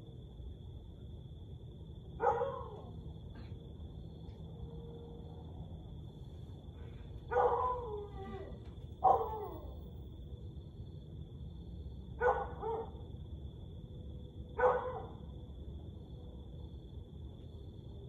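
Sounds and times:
husky howling barks: 0:02.2 - 0:03.0, 0:07.3 - 0:09.8, 0:12.2 - 0:13.0, 0:14.6 - 0:15.2.

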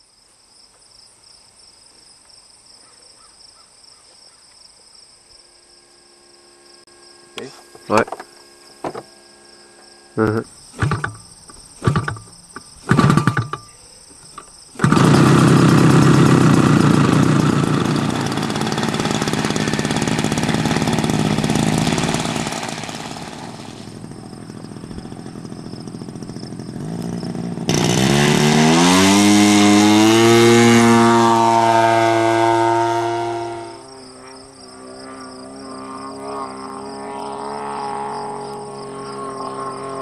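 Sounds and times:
model plane engine running: 0:12.9 - 0:13.7, 0:14.8 - 0:40.0.

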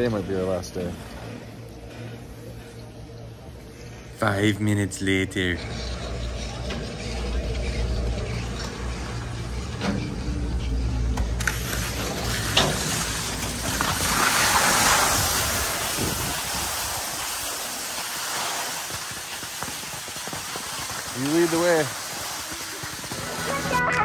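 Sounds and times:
skis scraping over snow: 0:11.4 - 0:24.0.

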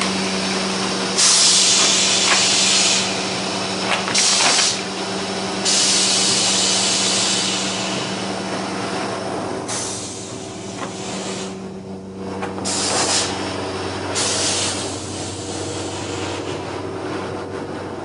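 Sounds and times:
vacuum forming machine humming: 0:00.0 - 0:18.0
air hissing bursts: 0:01.1 - 0:05.0, 0:05.6 - 0:08.2, 0:09.7 - 0:11.6, 0:12.6 - 0:13.5, 0:14.1 - 0:16.5.

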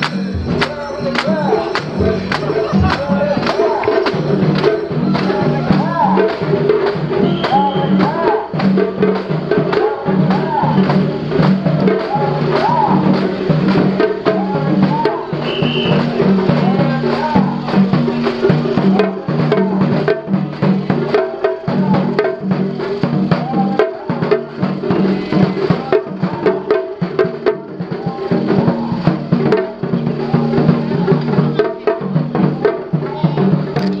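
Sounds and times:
taiko drums: 0:00.0 - 0:34.0
sharp wooden clacks: 0:33.8 - 0:34.0.

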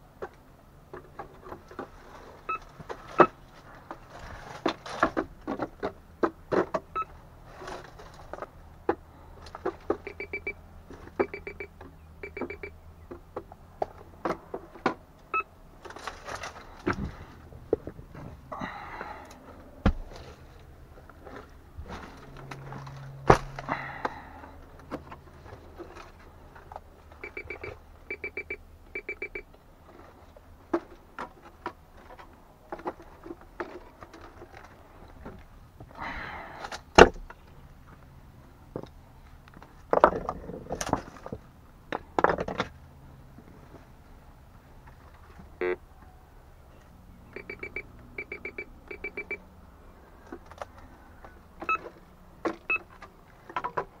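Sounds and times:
metal detector beeping: 0:10.0 - 0:10.6, 0:11.2 - 0:12.8, 0:27.2 - 0:29.5, 0:45.6 - 0:45.8, 0:47.4 - 0:49.4
rocks clacking and scraping: 0:39.5 - 0:42.8.

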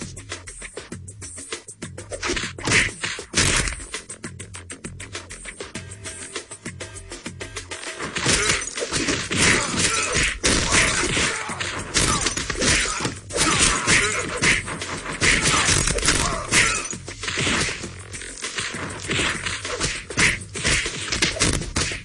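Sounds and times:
cartoon hits and thuds: 0:02.2 - 0:03.8, 0:08.1 - 0:17.9, 0:18.6 - 0:22.0.

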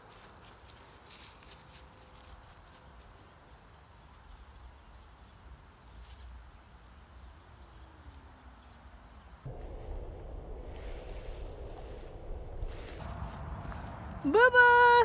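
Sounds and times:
dry leaves rustling and crackling: 0:00.0 - 0:09.8, 0:10.7 - 0:15.0
wind rumble on microphone: 0:09.4 - 0:14.3.

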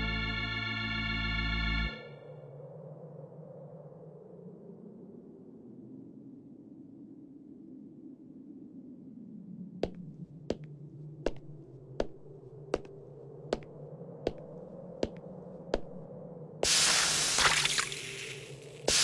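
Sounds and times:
footsteps clicking: 0:09.8 - 0:10.7, 0:11.3 - 0:13.7, 0:14.3 - 0:15.2, 0:15.8 - 0:16.0.

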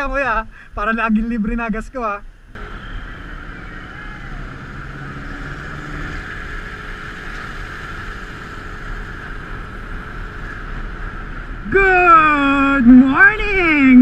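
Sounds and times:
wind and road noise: 0:00.0 - 0:14.0
motorcycle engine rumble: 0:02.6 - 0:13.4.

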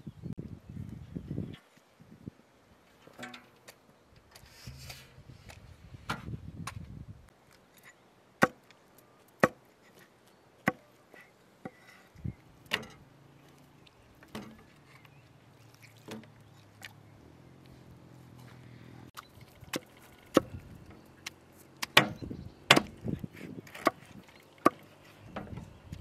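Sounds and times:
hatchet chopping into wood: 0:08.4 - 0:08.6, 0:09.4 - 0:09.6, 0:10.6 - 0:10.8, 0:21.8 - 0:23.0.

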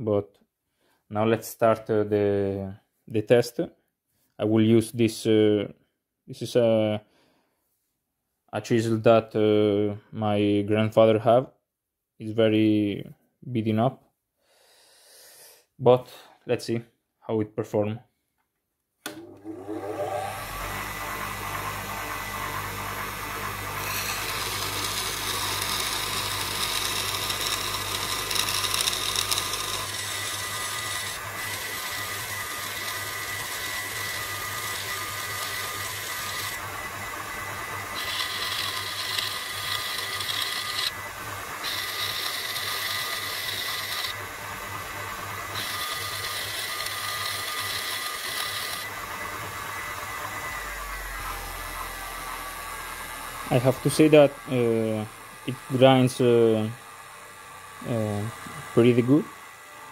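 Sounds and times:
grinder motor humming: 0:19.1 - 0:59.9
chisel grinding on stone: 0:23.8 - 0:36.6, 0:38.0 - 0:41.0, 0:41.6 - 0:44.2, 0:45.6 - 0:48.8.

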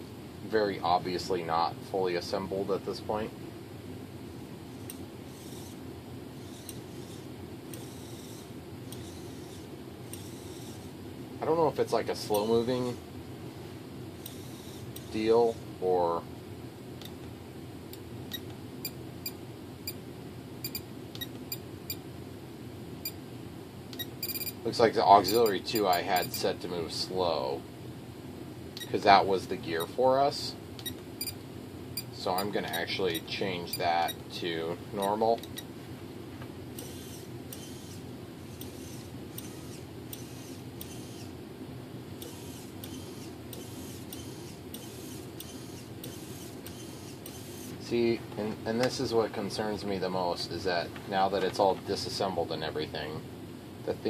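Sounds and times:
steady low hum: 0:00.0 - 0:54.0
servo motor whines: 0:04.8 - 0:05.8, 0:06.4 - 0:10.9, 0:14.2 - 0:15.1, 0:36.8 - 0:41.3, 0:42.2 - 0:47.8
servo clicks: 0:06.4 - 0:10.8, 0:36.8 - 0:41.3, 0:42.2 - 0:47.8.

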